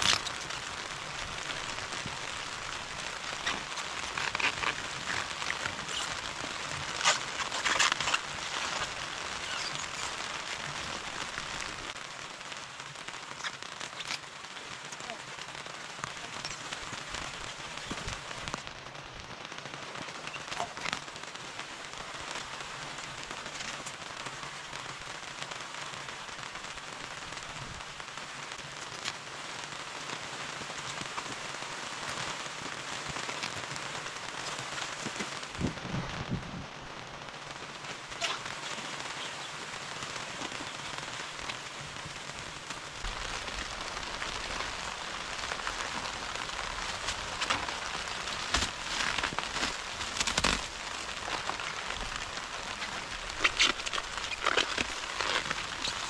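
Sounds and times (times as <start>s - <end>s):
raindrops clicking: 0.0s - 18.8s, 38.0s - 56.0s
heavy rain falling: 0.0s - 56.0s.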